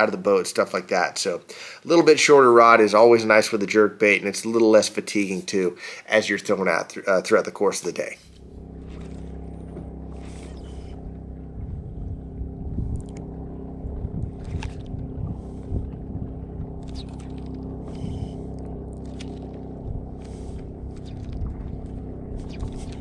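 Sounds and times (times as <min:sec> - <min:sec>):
steady low hum: 0:00.0 - 0:23.0
wind buffeting microphone: 0:10.2 - 0:18.9, 0:19.7 - 0:23.0.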